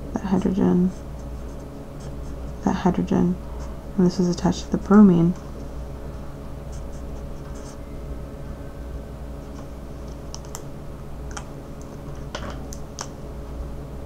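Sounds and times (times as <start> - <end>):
steady low hum: 0.0 - 14.0
marker pens clicking and tapping: 10.0 - 10.6.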